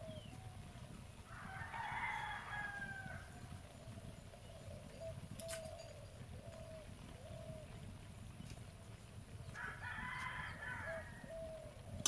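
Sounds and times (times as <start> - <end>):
rooster crowing: 1.3 - 3.4, 9.6 - 11.7.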